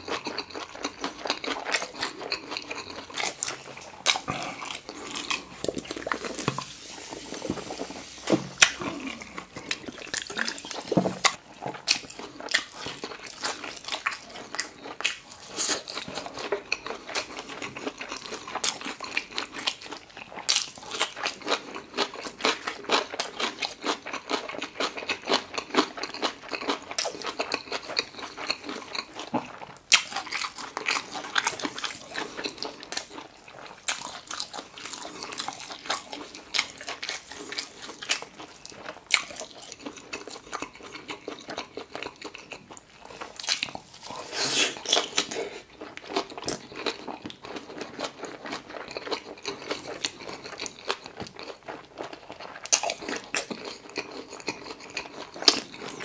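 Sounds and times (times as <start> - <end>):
chewing and lip-smacking: 0.0 - 56.0.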